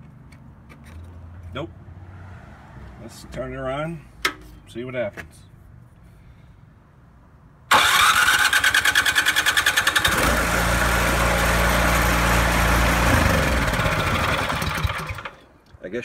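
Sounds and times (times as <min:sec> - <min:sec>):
electric starter whirring: 0:07.7 - 0:15.4
engine running: 0:07.7 - 0:15.4.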